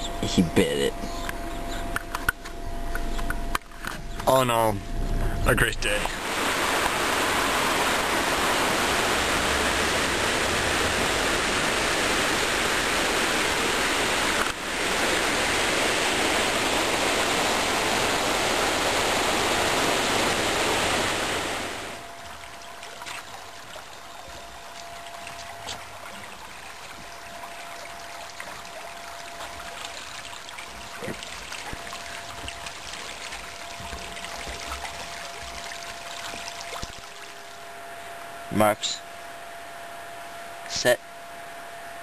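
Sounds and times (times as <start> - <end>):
faint steady hum: 0.0 - 42.0
soft water sound: 5.8 - 38.5
river rushing over stones: 6.2 - 37.5.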